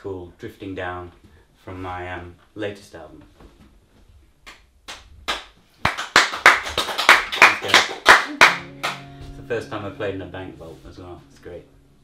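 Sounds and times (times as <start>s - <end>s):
audience applause: 5.8s - 9.0s.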